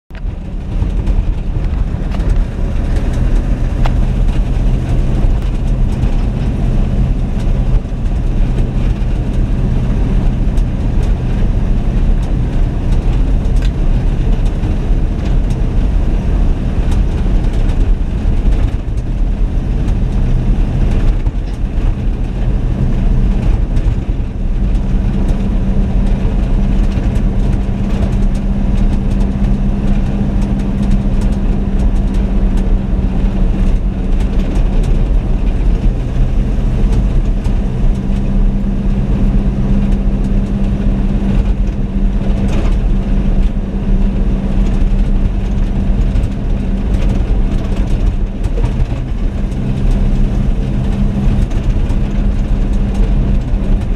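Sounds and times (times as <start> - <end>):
truck engine running: 0.1 - 53.9
tyre and road noise: 0.1 - 53.9.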